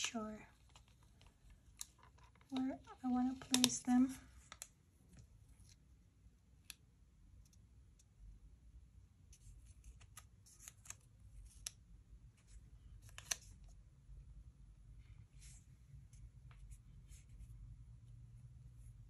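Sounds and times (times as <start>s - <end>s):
paper rustling: 0.5s - 5.8s.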